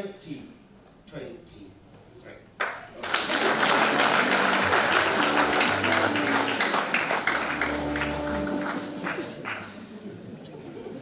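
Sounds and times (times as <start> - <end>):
crowd applauding: 2.9 - 10.3
sustained low musical notes: 3.5 - 10.4.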